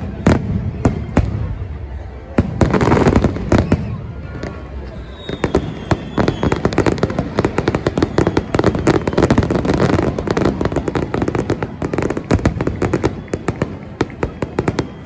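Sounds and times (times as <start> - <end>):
fireworks bangs and pops: 0.0 - 15.0.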